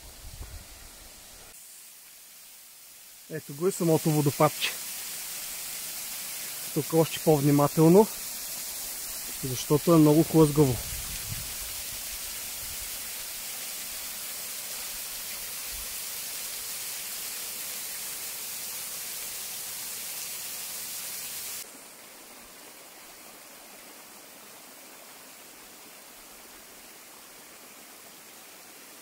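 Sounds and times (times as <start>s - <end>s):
waterfall splashing onto stones: 0.0s - 21.7s.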